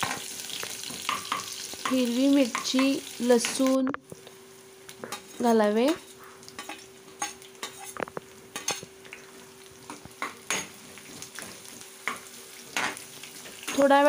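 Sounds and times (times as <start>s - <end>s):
food sizzling in oil: 0.0s - 14.0s
spatula scraping pan: 5.1s - 8.0s.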